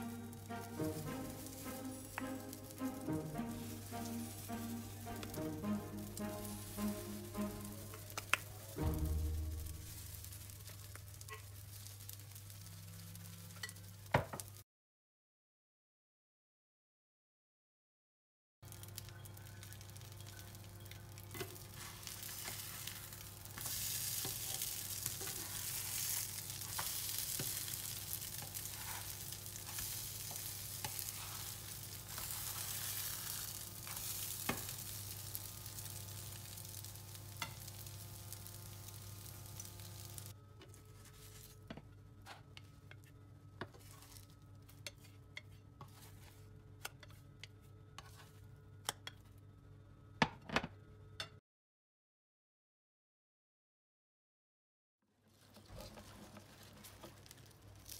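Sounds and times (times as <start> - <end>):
food sizzling in a frying pan: 0.0 - 14.6, 18.7 - 40.4, 55.8 - 57.9.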